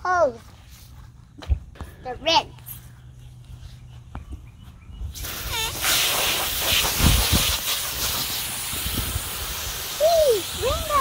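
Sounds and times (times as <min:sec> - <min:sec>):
hose nozzle spraying water: 0:05.2 - 0:11.0.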